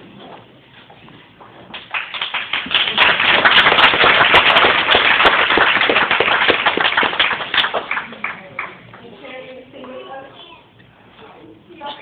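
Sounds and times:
crowd applauding: 1.8 - 9.0.

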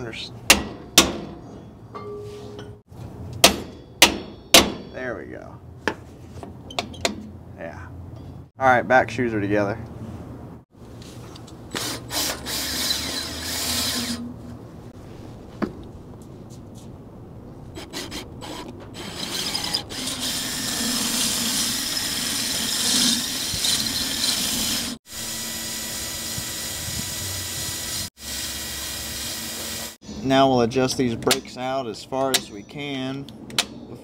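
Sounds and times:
power tool running: 19.3 - 30.0.

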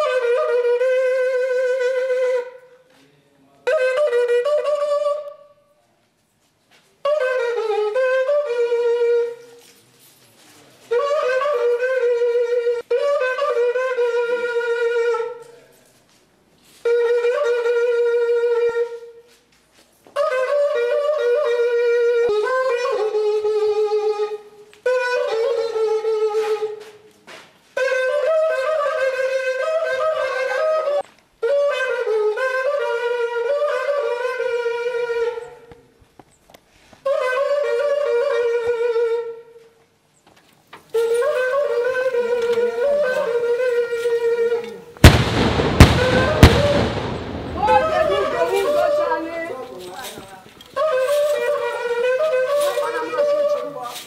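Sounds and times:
solo wind instrument long notes: 40.9 - 49.8, 50.7 - 53.7
loud bang with rushing decay: 45.0 - 48.8
sharp crack: 45.0 - 49.0.

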